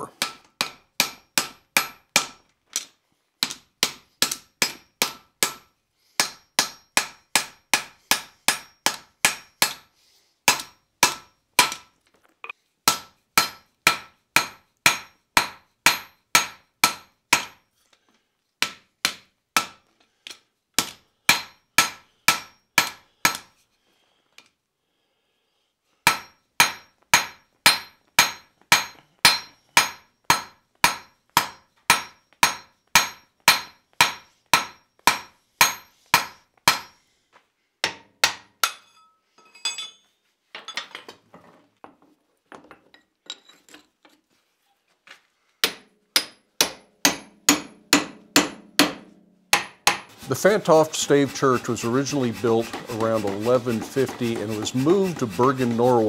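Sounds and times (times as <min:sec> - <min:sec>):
hammer striking iron on anvil: 0:00.2 - 0:02.4, 0:03.4 - 0:09.9, 0:10.5 - 0:11.9, 0:12.9 - 0:17.6, 0:18.6 - 0:19.8, 0:20.8 - 0:23.5, 0:26.1 - 0:37.0, 0:37.8 - 0:40.0, 0:45.6 - 0:50.1.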